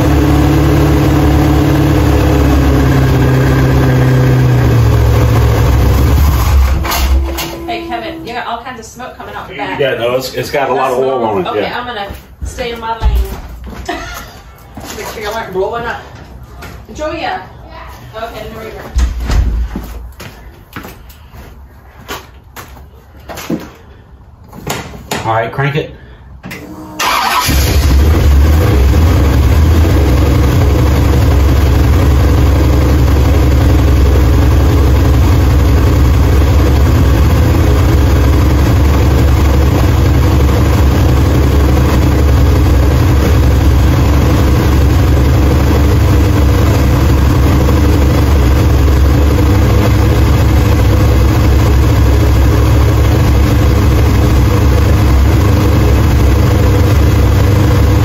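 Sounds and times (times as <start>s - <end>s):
car engine starting and idling: 0.0s - 11.2s, 26.4s - 58.0s.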